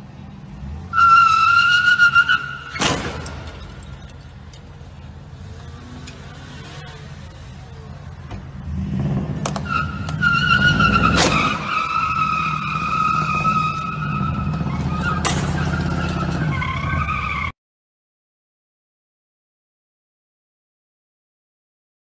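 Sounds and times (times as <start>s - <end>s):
tyre squeal: 0.8s - 4.4s, 9.5s - 17.6s
car impact bangs: 2.3s - 3.9s, 10.8s - 13.5s, 14.5s - 16.4s
car engine revving: 5.0s - 17.3s.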